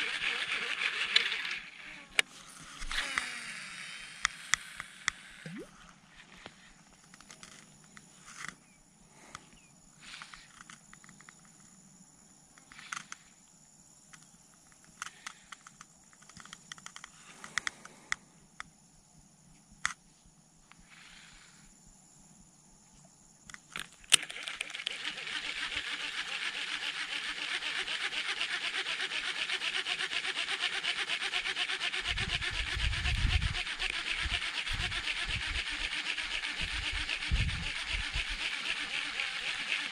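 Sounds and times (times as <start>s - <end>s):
fishing reel grinding rasp: 0.0s - 2.2s, 24.1s - 39.9s
reel clicks: 0.0s - 8.6s, 12.6s - 13.3s, 14.1s - 18.7s, 23.4s - 39.9s.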